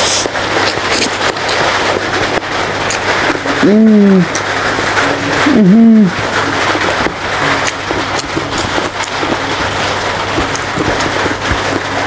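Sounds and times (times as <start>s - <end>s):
rice mixed by hand and chewed: 0.0s - 12.0s
steady rain hiss: 0.0s - 12.0s
person humming: 3.6s - 4.4s, 5.4s - 6.2s.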